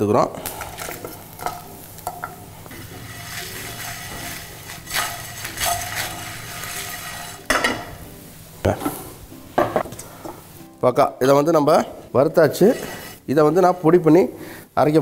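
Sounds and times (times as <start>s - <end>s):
faint sizzle: 0.0s - 15.0s
spices rattling in a frying pan: 0.5s - 7.8s.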